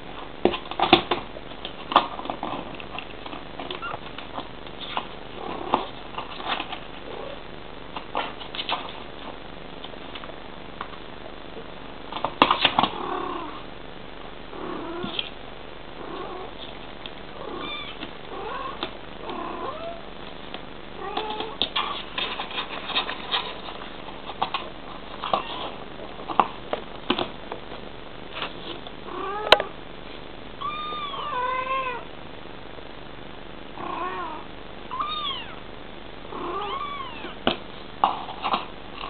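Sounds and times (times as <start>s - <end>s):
cats chirping mews: 17.4s - 18.8s, 34.9s - 35.6s
claws scratching cardboard: 21.8s - 25.7s.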